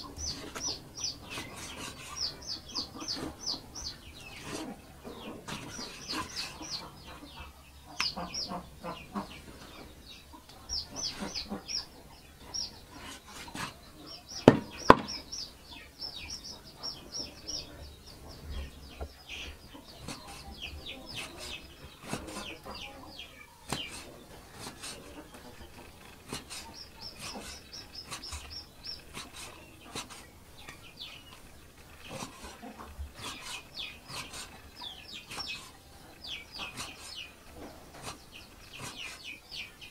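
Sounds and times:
birds chirping: 0.0s - 39.9s
cleaver chopping on wooden block: 14.4s - 15.2s.

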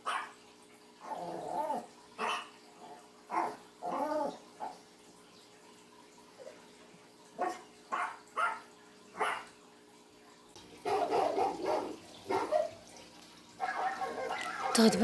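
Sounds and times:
dog barking: 0.0s - 0.4s, 2.2s - 2.5s, 3.3s - 3.6s, 7.4s - 9.5s, 10.8s - 12.8s, 13.6s - 14.9s.

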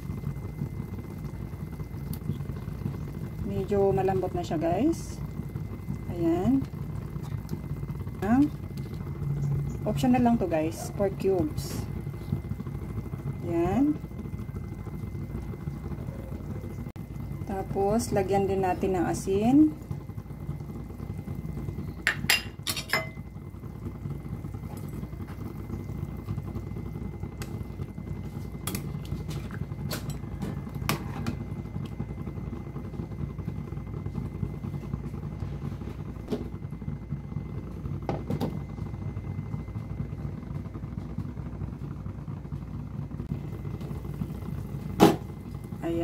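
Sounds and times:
pot boiling: 0.0s - 46.0s.

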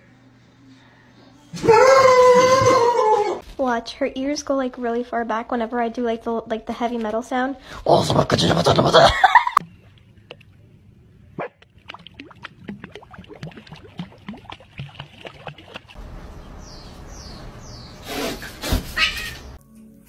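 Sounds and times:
dog splashing in water: 11.9s - 16.2s
high falling chirps: 16.0s - 18.4s.

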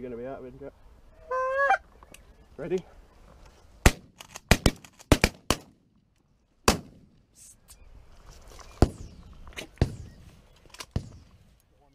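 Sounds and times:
shotgun shots: 3.8s - 5.8s, 6.6s - 7.1s, 8.8s - 11.4s.

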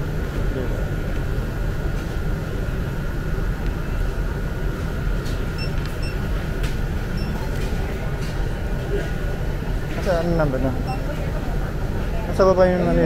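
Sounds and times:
faint constant whine: 0.0s - 13.0s
short electronic beeps: 5.6s - 6.2s, 7.2s - 7.4s.

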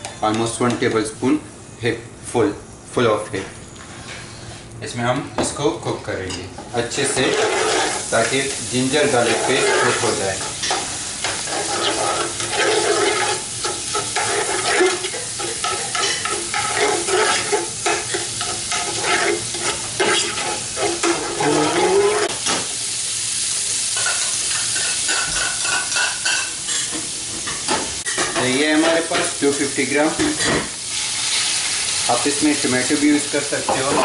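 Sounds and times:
metal spoon scraping pot: 7.0s - 8.0s, 9.2s - 10.8s, 11.4s - 22.3s
paste sizzling in ghee: 7.0s - 26.6s, 30.8s - 33.9s.

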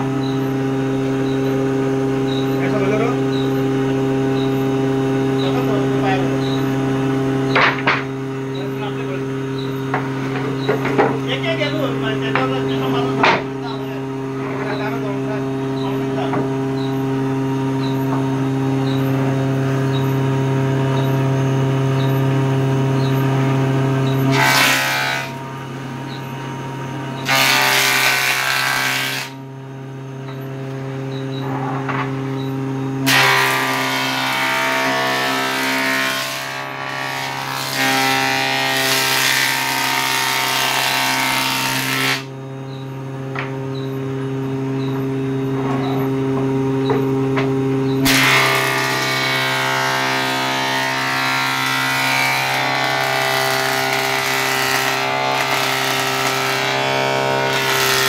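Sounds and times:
planer motor hum: 0.0s - 58.0s
planer cutting wood: 23.4s - 29.4s, 33.0s - 42.4s, 48.0s - 58.0s.

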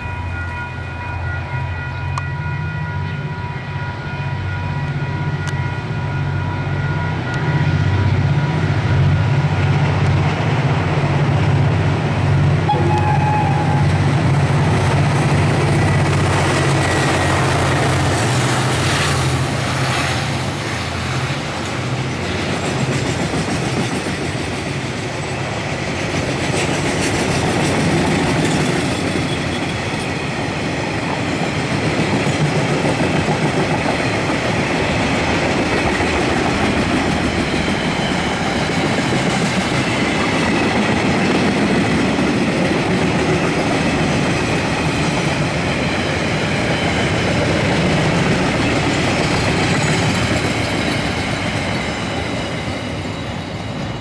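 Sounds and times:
diesel locomotive engines droning: 0.0s - 54.0s
freight train rumble: 0.0s - 54.0s
wheels clacking on rails: 0.0s - 54.0s.

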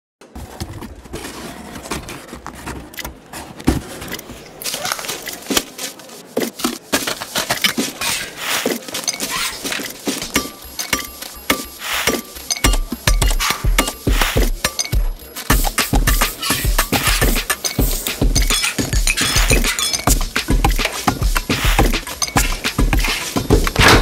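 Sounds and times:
rapid irregular clicks and taps: 2.9s - 24.0s.

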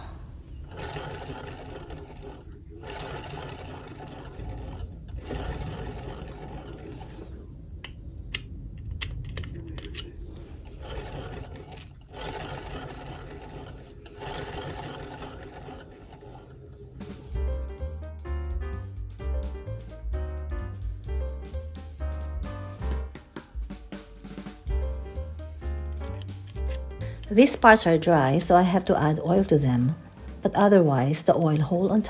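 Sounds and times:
sewing machine whirring: 0.0s - 7.6s, 10.3s - 17.4s
piano music: 17.0s - 32.0s.

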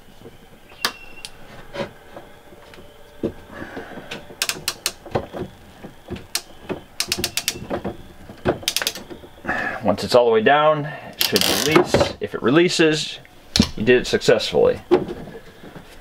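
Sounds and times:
crimp tool ratchet clicking: 7.0s - 7.6s, 8.6s - 9.0s.

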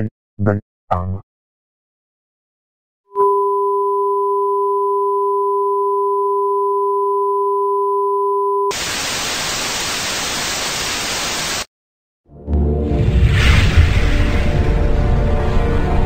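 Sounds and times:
tv static hiss: 8.8s - 11.6s.

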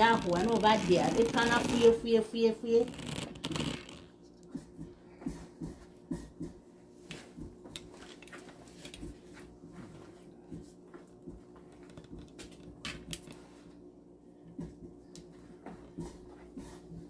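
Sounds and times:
hands kneading dough: 0.0s - 17.0s
low steady hum: 0.0s - 17.0s.

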